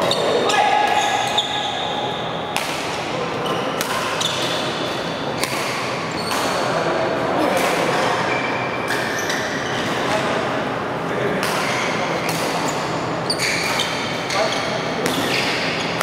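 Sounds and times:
sneakers squeaking on court: 0.0s - 2.3s, 3.4s - 4.8s, 12.7s - 16.0s
rackets striking shuttlecock: 2.5s - 6.8s.

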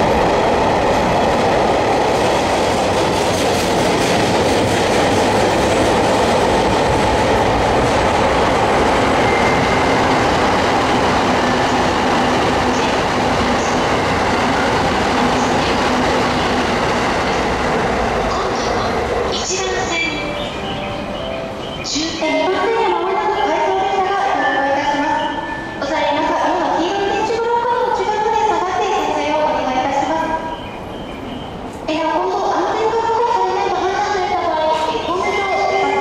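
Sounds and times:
freight train rumbling past: 0.0s - 36.0s
steel wheels clattering on rails: 1.0s - 19.9s.

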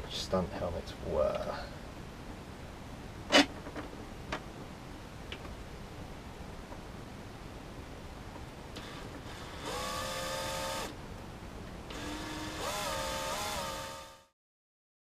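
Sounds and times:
cordless drill whining: 8.8s - 10.9s, 11.9s - 14.3s.

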